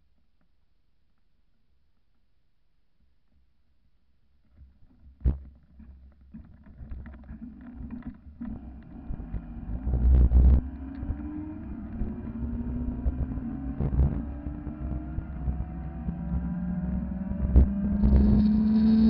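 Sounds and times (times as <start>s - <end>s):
road rumble: 8.4s - 19.0s
wind on microphone: 9.1s - 19.0s
electric bike motor whining: 16.1s - 19.0s.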